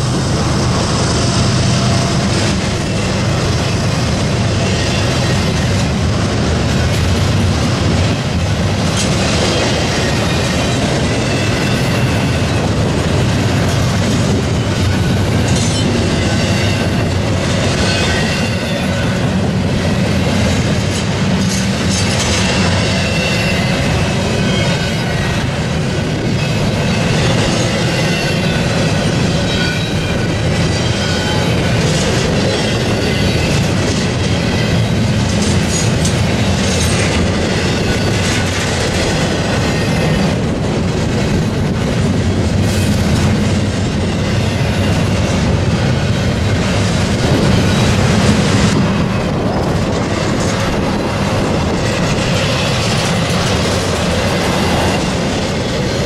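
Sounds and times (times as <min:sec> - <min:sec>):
freight train wheels rumbling: 0:00.0 - 0:56.0
high wheel squeal: 0:22.4 - 0:25.5, 0:26.3 - 0:33.8.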